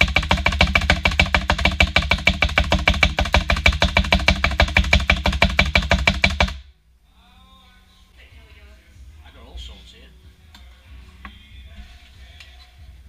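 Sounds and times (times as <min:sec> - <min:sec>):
fast percussive clicks: 0:00.0 - 0:06.6.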